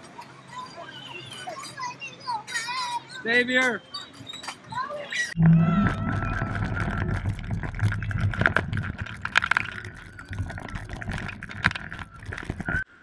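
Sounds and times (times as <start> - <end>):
steady high whine: 5.4 - 13.0.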